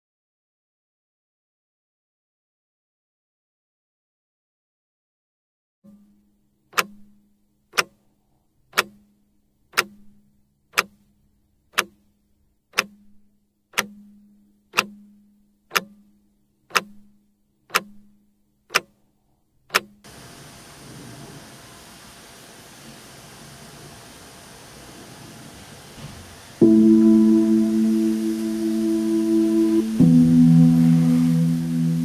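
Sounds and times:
faint steady low hum: 0:06.0 - 0:32.0
alarm clock ticking loudly: 0:06.8 - 0:07.2, 0:07.8 - 0:08.0, 0:08.8 - 0:09.0, 0:09.8 - 0:10.0, 0:10.8 - 0:11.0, 0:11.8 - 0:12.0, 0:12.8 - 0:13.0, 0:13.8 - 0:15.1, 0:15.7 - 0:16.0, 0:16.7 - 0:17.0, 0:17.7 - 0:18.0, 0:18.7 - 0:18.9, 0:26.6 - 0:32.0
steady hiss: 0:20.1 - 0:32.0.

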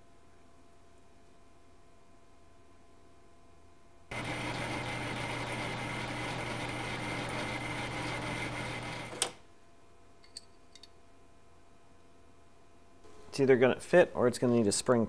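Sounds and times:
metal lathe running and cutting: 0:04.1 - 0:09.4.

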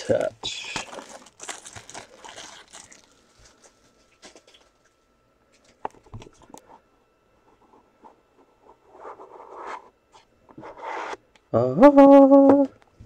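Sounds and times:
packaging crinkling: 0:00.1 - 0:05.0.

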